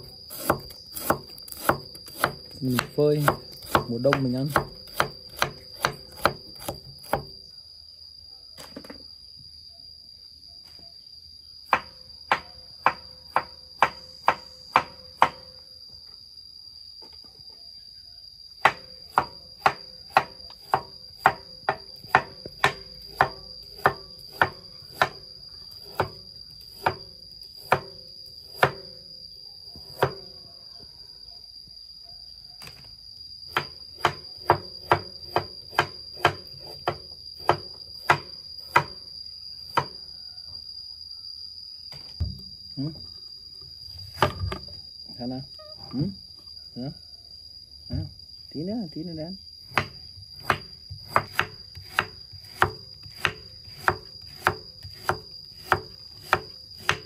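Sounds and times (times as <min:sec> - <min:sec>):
high-pitched insect drone: 0:00.0 - 0:57.0
knife chopping on wooden board: 0:00.3 - 0:07.3, 0:18.6 - 0:25.2, 0:26.8 - 0:27.0, 0:33.5 - 0:39.0, 0:49.7 - 0:57.0.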